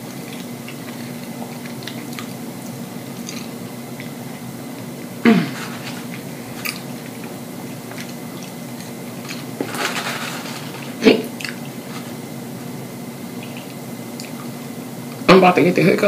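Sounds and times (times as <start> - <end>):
person chewing with wet smacking: 0.0 - 5.0, 6.0 - 9.5, 11.4 - 11.8, 13.4 - 14.6
person hiccuping: 5.2 - 5.7.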